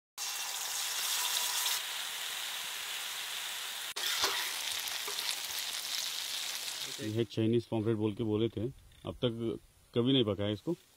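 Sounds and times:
hot oil sizzling in a pan: 0.2 - 7.2.

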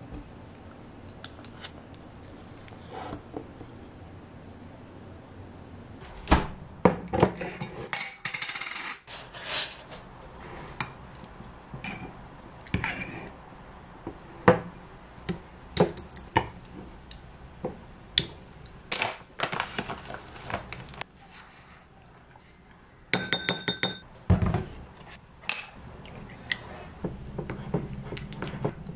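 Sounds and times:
plastic bag rustling: 19.4 - 21.0
wooden spoon clinking in glass jar: 23.2 - 24.0.

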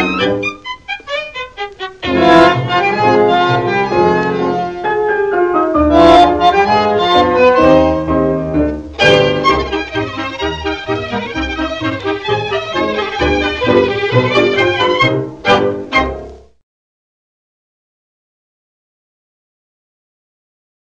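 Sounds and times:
tango orchestra playing: 0.0 - 16.6.

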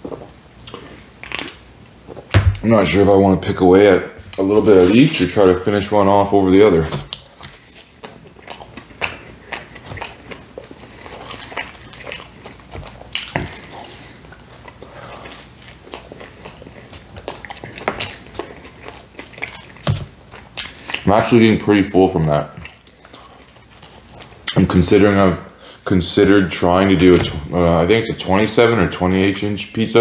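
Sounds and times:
person chewing crunchy food: 0.0 - 2.3, 6.9 - 21.4, 22.5 - 24.8.

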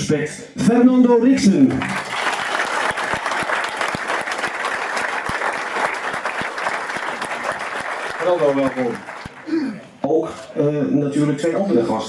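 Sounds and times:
audience applauding: 1.7 - 9.6.

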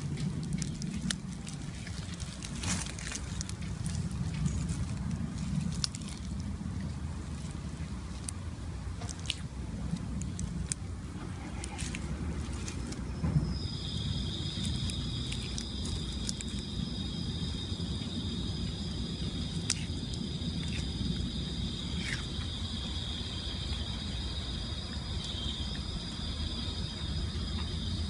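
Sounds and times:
low rumble: 0.0 - 28.0
insect high-pitched trill: 11.5 - 28.0.

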